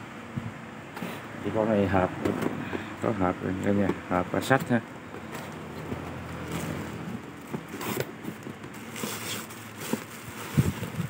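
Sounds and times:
handling scrapes and clicks: 4.6s - 11.0s.

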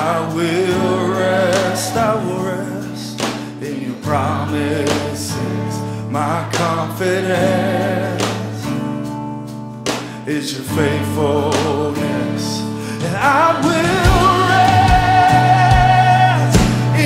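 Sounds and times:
person singing worship song: 0.0s - 8.9s, 10.1s - 17.0s
sustained backing chords: 10.9s - 17.0s.

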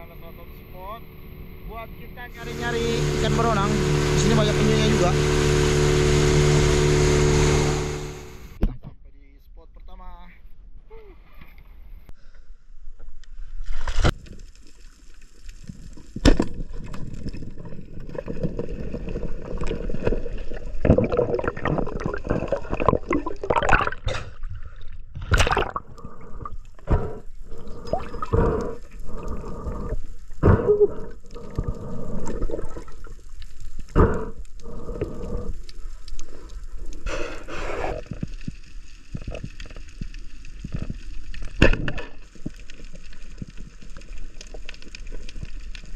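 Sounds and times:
water gurgling and splashing: 14.3s - 45.9s.

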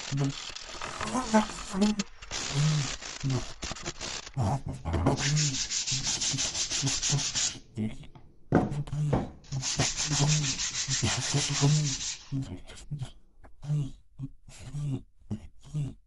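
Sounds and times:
sanding block rubbing wood: 0.0s - 4.4s, 5.1s - 7.6s, 9.5s - 12.4s.

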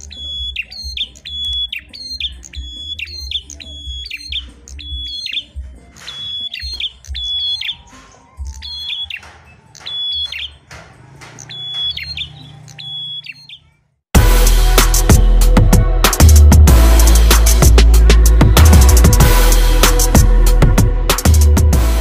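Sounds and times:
songbird singing high notes: 0.0s - 10.6s, 11.4s - 13.8s.

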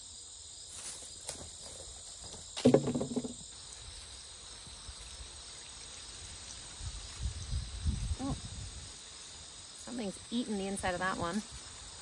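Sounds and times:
insects chirring: 0.0s - 12.0s
sudden knock and rustle: 1.2s - 3.5s.

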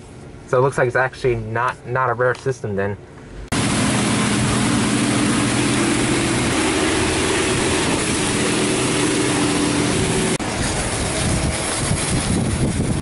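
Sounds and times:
low machine hum: 0.0s - 13.0s
car wash water rush: 3.5s - 13.0s.

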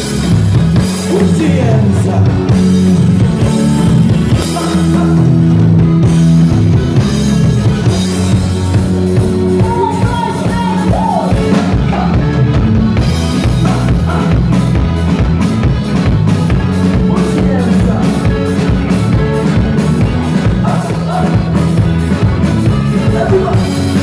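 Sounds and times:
drum kit beat: 0.0s - 24.0s
electric guitar: 0.0s - 24.0s
man singing: 1.0s - 3.2s, 3.8s - 5.9s, 9.4s - 12.6s, 13.4s - 14.7s, 16.9s - 22.0s, 22.7s - 24.0s.

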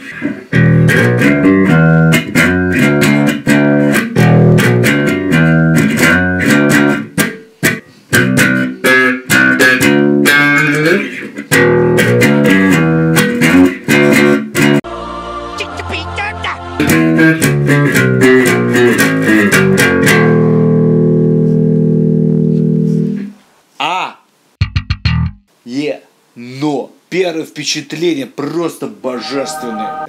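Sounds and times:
electric bass plucked notes: 0.5s - 14.8s, 16.8s - 23.2s, 24.6s - 25.5s.

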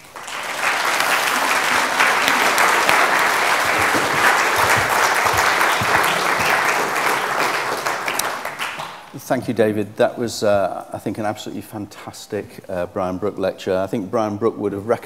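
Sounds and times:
audience applauding: 0.0s - 9.1s.

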